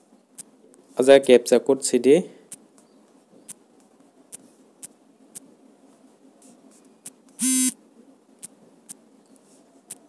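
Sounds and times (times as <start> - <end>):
short buzzy tone: 7.4 - 7.8.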